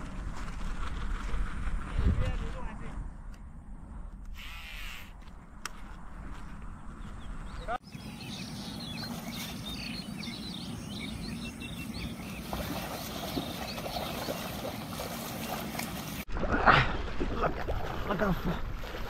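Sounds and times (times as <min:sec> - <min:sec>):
small birds chirping: 0:06.3 - 0:16.3.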